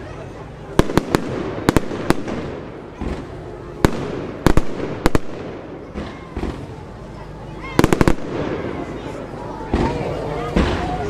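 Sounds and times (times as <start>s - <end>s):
background noise: 0.0s - 11.0s
fireworks bangs: 0.7s - 7.0s, 7.6s - 11.0s.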